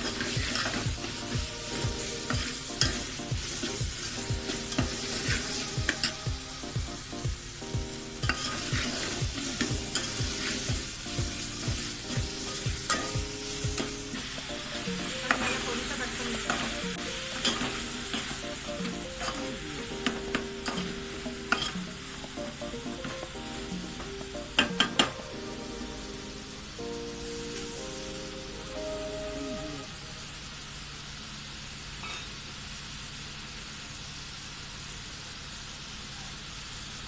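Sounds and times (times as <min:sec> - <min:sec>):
background music: 0:00.0 - 0:30.2
food sizzling in a pot: 0:00.0 - 0:37.0
metal spoon scraping and clinking: 0:20.6 - 0:21.8.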